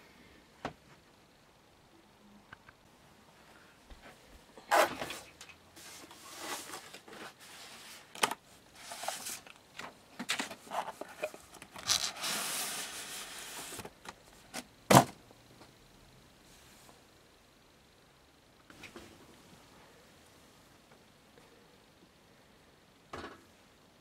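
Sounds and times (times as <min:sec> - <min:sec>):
cardboard rustling and tearing: 0:11.8 - 0:13.9.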